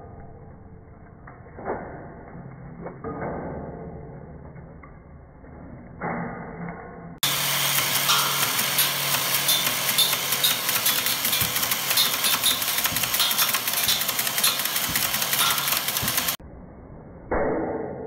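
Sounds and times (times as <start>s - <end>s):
motor hum: 7.2s - 16.4s
discs cracking against metal truss: 7.6s - 16.4s.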